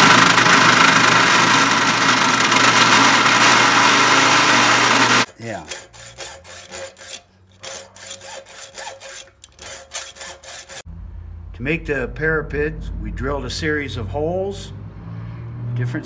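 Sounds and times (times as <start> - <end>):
drill press whirring: 0.0 - 10.8
hacksaw cutting steel: 0.0 - 10.9.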